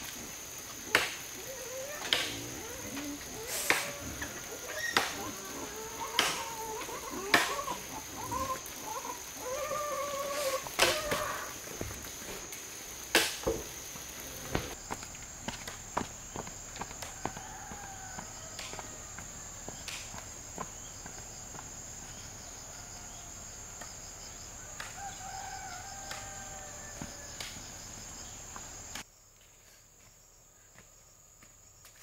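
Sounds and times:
insects droning: 0:00.0 - 0:32.0
chicken calls: 0:01.4 - 0:11.8.

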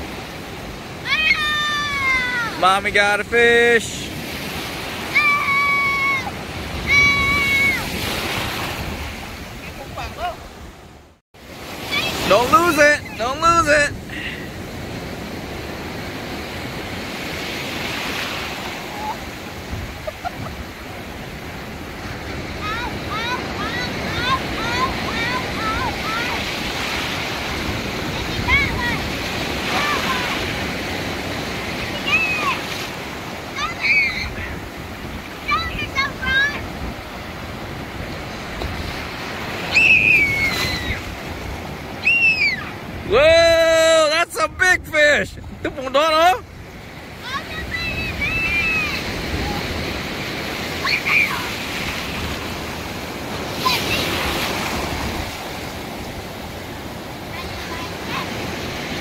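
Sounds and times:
ocean surf rushing: 0:00.0 - 0:59.0
wind on microphone: 0:17.8 - 0:22.7, 0:46.5 - 0:50.7.

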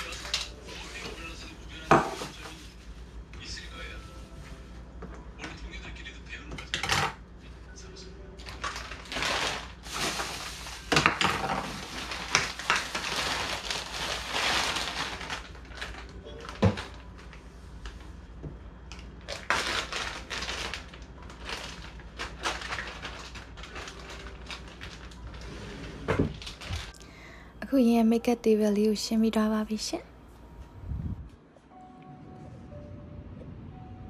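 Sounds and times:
bag rustling: 0:08.6 - 0:11.0, 0:11.6 - 0:17.0, 0:19.3 - 0:27.0.

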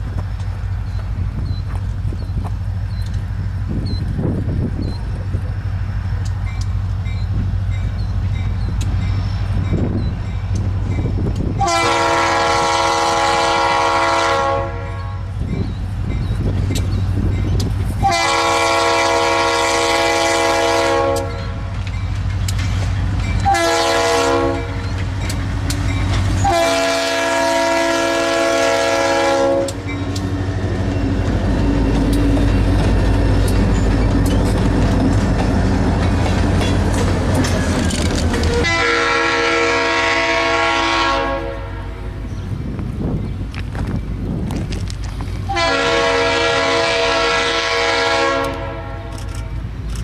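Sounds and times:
train wheels clacking on rail joints: 0:00.0 - 0:39.3, 0:42.2 - 0:50.0
locomotive engine rumbling: 0:00.0 - 0:50.0
locomotive air horn blasts: 0:11.6 - 0:15.4, 0:18.0 - 0:21.7, 0:23.4 - 0:24.8, 0:26.4 - 0:29.8, 0:38.5 - 0:42.0, 0:45.5 - 0:49.2.

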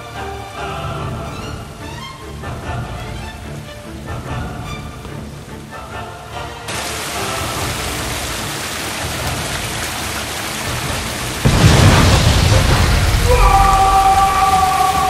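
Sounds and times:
heavy rain: 0:00.0 - 0:15.0
loud boom with deep rumble: 0:11.4 - 0:14.3.

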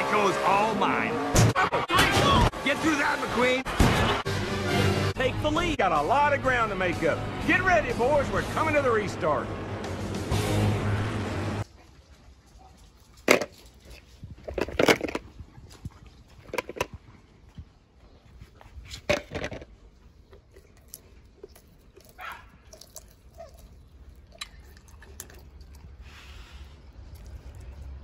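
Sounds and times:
toy cars knocking and clattering: 0:13.2 - 0:13.7, 0:14.4 - 0:15.2, 0:19.1 - 0:19.7.

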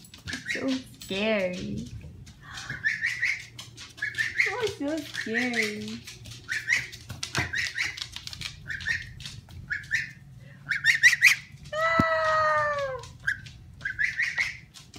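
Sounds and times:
gosling peeping: 0:00.2 - 0:00.8, 0:02.6 - 0:11.5, 0:13.2 - 0:14.7.

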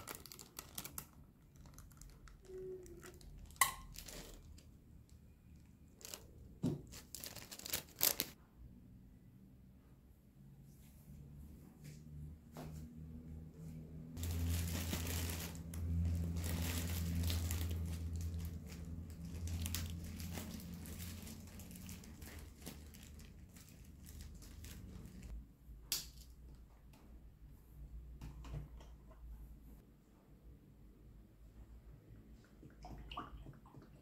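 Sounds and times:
low electric hum: 0:11.1 - 0:27.8.

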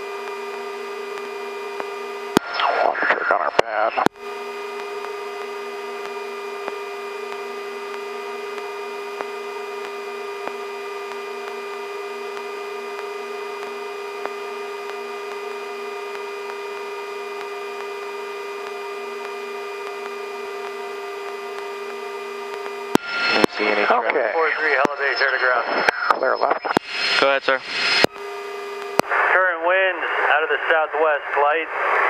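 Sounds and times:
helicopter turbine hum: 0:04.1 - 0:25.6.

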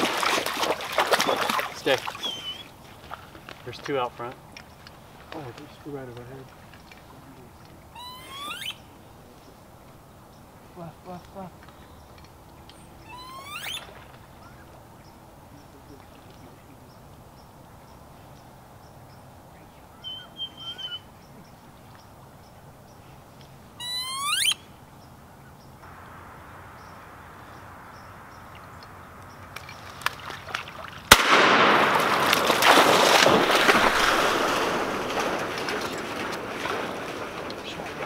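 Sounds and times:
duck call whistle and squeal: 0:02.2 - 0:02.7, 0:08.0 - 0:08.8, 0:13.0 - 0:13.9, 0:20.0 - 0:21.0, 0:23.8 - 0:24.6
shotgun shot: 0:31.1 - 0:35.4.

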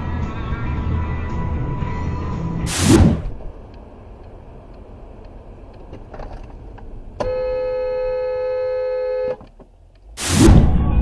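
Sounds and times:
quiet road noise: 0:00.0 - 0:11.0
car horn blast: 0:07.2 - 0:09.4.

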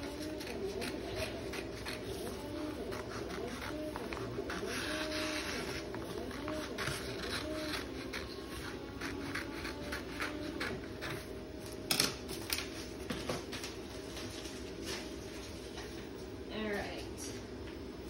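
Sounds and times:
scissors snipping paper: 0:00.0 - 0:11.3.

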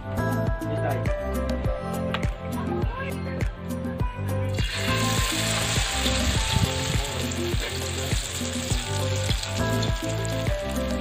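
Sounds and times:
food sizzling in hot oil: 0:04.5 - 0:11.0.

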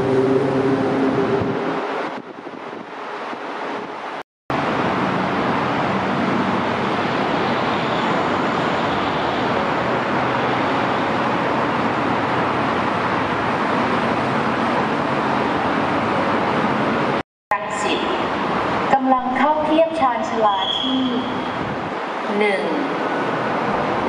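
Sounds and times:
traffic rushing: 0:00.0 - 0:24.0.

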